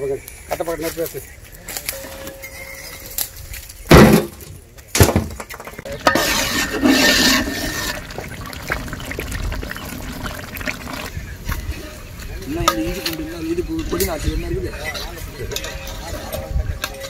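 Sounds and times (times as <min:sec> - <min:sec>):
metal pot lid clanking: 0:05.8 - 0:08.1
ladle stirring gravy: 0:05.8 - 0:11.2.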